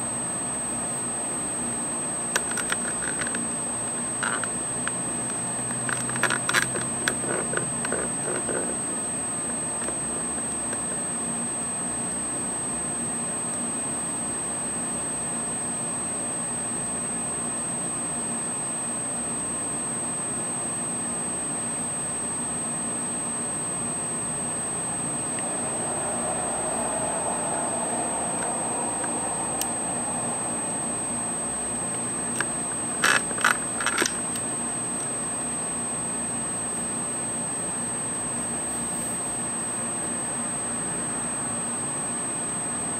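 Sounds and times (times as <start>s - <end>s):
faint drone: 0.0s - 12.7s, 22.2s - 42.9s
high-pitched whine: 0.0s - 42.9s
click: 2.3s - 3.4s, 28.4s - 29.8s, 32.3s - 35.1s.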